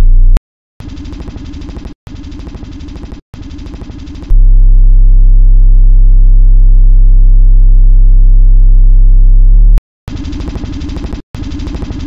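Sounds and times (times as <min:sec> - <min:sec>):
deep electronic drone: 0:04.3 - 0:09.8.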